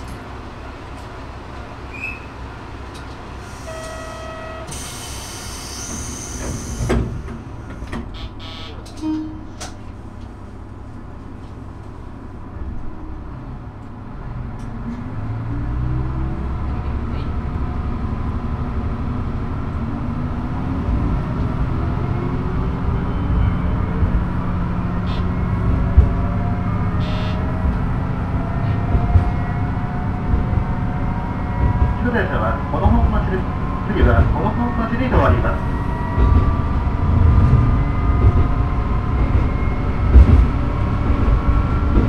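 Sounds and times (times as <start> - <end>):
diesel railcar engine: 0.0 - 42.0
short buzzer tone: 3.6 - 4.8, 8.2 - 9.6, 27.0 - 27.4
air hiss: 4.7 - 7.2.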